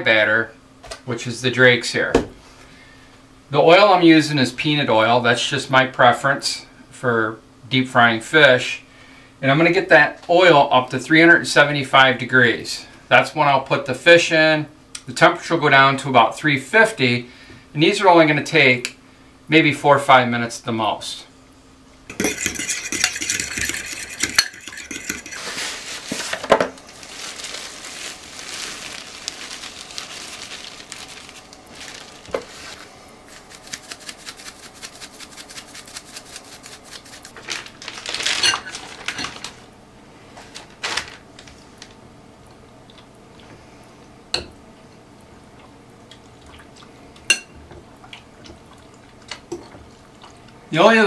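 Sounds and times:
fork clinking against glass: 22.1s - 25.4s
fork whisking in glass bowl: 22.1s - 26.2s, 33.3s - 37.4s.

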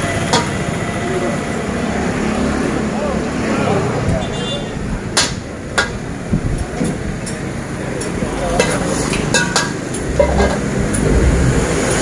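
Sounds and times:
metal ladle scraping a wok: 8.6s - 11.0s
sharp metal clanks: 8.6s - 11.1s.

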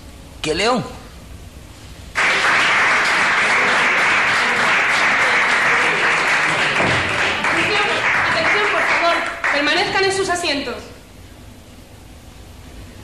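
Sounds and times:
audience applauding: 2.1s - 10.2s.

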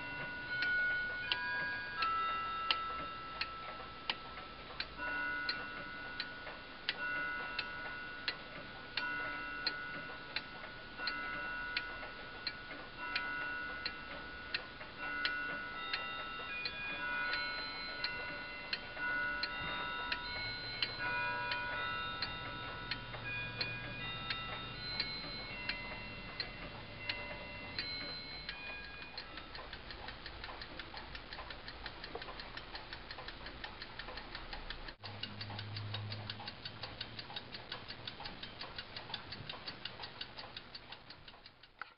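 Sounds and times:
clock escapement rattling fast: 0.0s - 41.8s
wall clock ticking: 0.0s - 41.9s
ringing tone: 15.0s - 29.5s.

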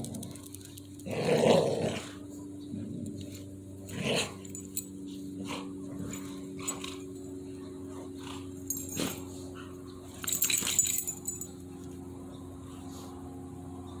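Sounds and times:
dog growling: 0.0s - 4.5s
low steady hum: 0.0s - 14.0s.

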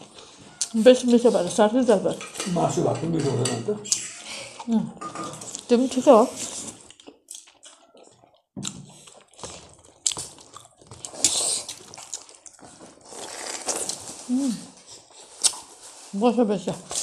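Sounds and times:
wet chewing and lip smacks: 6.6s - 14.0s.

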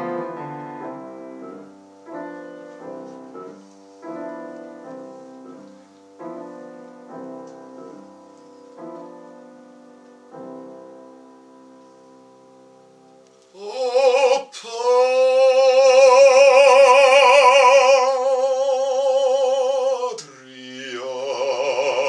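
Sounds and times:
piano chords: 0.0s - 22.0s
operatic male voice singing: 13.6s - 22.0s.

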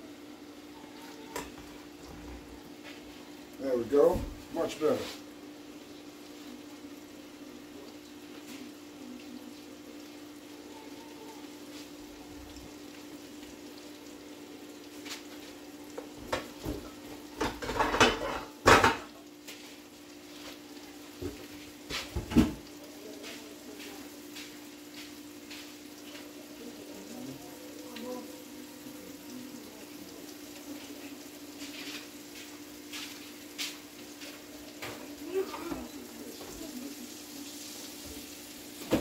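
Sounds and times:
chicken sizzling in frying pan: 0.0s - 39.0s
pots and pans clattering: 1.3s - 2.5s, 15.9s - 19.6s, 20.4s - 22.8s, 38.8s - 39.0s.

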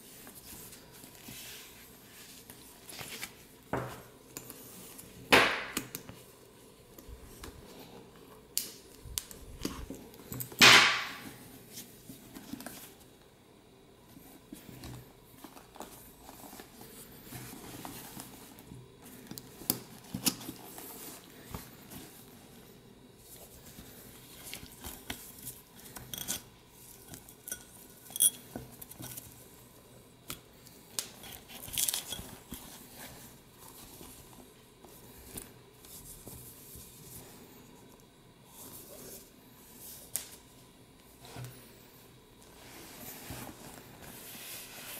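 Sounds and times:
bag rustling and rubbing: 42.5s - 44.9s.

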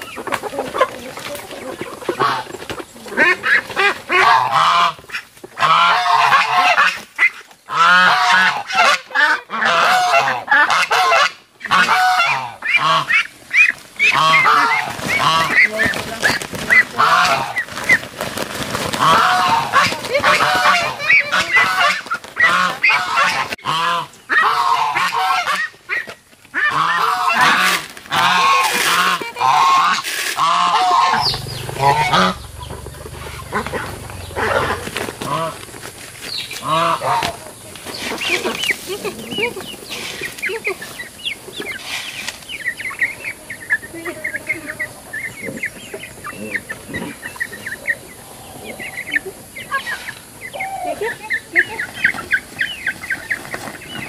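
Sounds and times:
waterfowl honking and quacking: 0.0s - 18.0s, 18.9s - 54.0s
low steady rumble: 30.6s - 37.1s.

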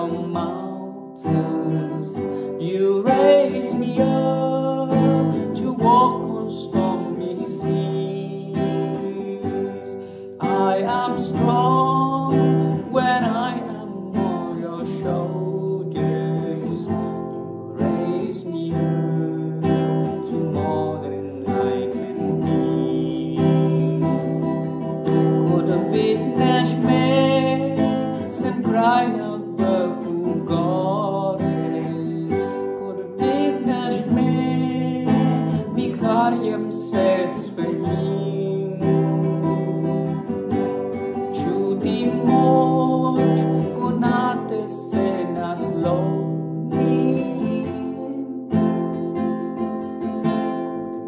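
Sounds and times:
acoustic guitar: 0.0s - 51.0s
man singing: 0.0s - 51.0s.

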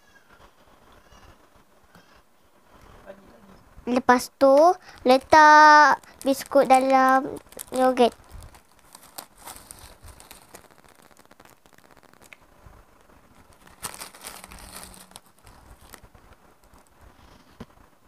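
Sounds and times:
rustle: 0.0s - 3.9s, 4.8s - 18.0s
biscuits crinkling and crackling: 3.9s - 18.0s.

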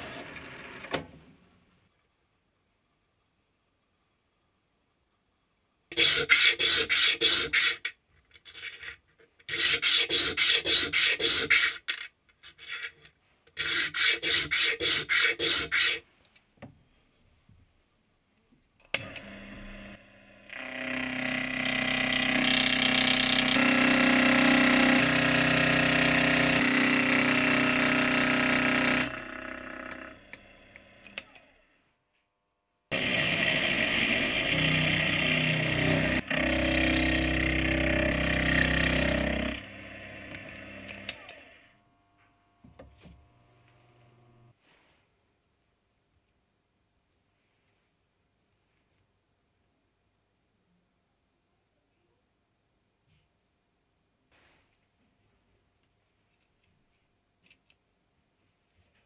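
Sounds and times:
washer scraping on sandpaper: 13.6s - 16.0s
milling machine running: 19.0s - 31.4s, 32.9s - 41.6s
end mill cutting metal: 19.0s - 31.5s, 32.9s - 41.7s.

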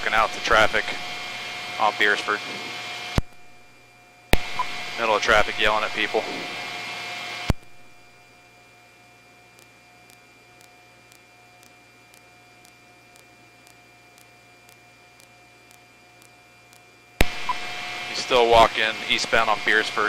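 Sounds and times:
faint radio hum and hiss: 0.0s - 20.0s
radio transmission click: 4.4s - 6.4s, 9.5s - 20.0s
soft radio ticks: 9.4s - 17.1s.

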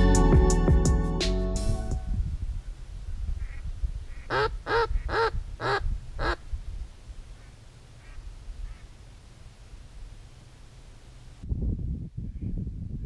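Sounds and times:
duck quacking: 3.4s - 6.4s, 7.4s - 8.9s.

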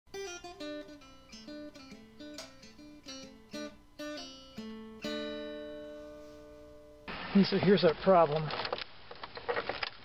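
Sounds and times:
acoustic guitar melody: 0.1s - 7.3s.

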